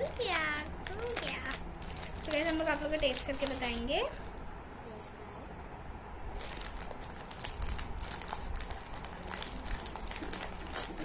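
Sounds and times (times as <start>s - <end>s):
wrapper crinkling: 0.0s - 4.1s, 6.3s - 11.0s.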